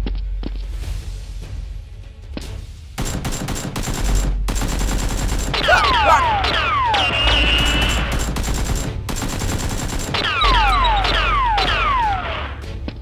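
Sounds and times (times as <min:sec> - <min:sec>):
gunfire bursts: 0:03.0 - 0:12.6.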